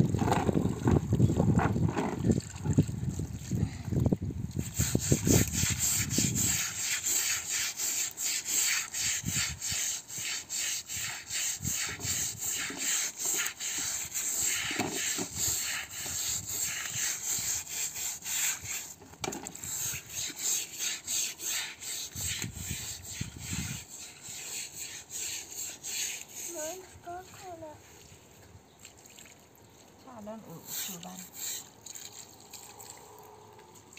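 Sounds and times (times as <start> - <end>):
brush scrubbing wet carpet: 4.6 - 27.7, 30.4 - 31.8.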